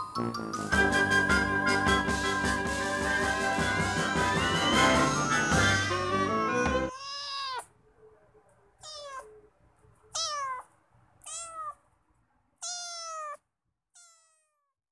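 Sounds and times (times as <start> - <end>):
cat meowing: 6.9 - 7.8, 8.8 - 9.5, 10.1 - 11.9, 12.6 - 13.4, 14.0 - 14.7.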